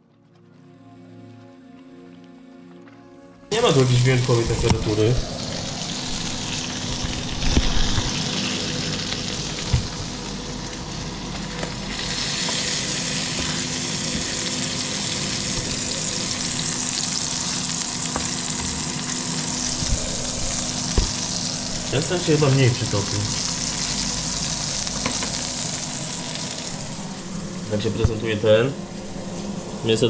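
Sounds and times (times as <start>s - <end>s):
burger patty sizzling in a pan: 3.8s - 27.3s.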